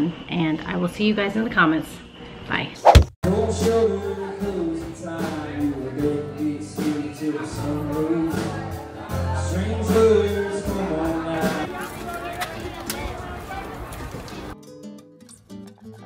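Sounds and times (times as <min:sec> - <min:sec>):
person singing: 0:03.2 - 0:11.7.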